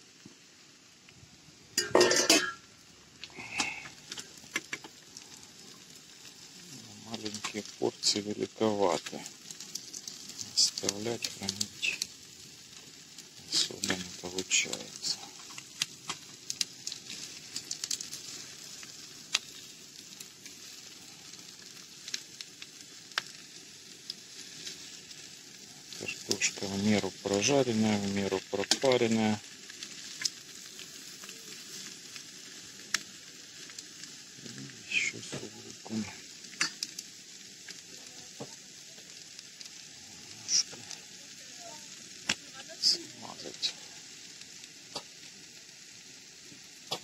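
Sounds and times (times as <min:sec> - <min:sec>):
potatoes and onion sizzling in a pan: 0:00.0 - 0:47.0
metallic clatter of pan: 0:01.8 - 0:02.6.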